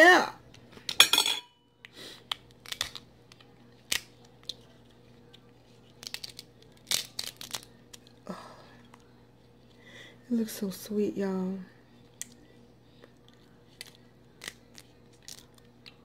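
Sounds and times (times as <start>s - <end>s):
crab shell cracking: 2.3s - 4.6s, 5.9s - 8.2s, 13.7s - 16.0s.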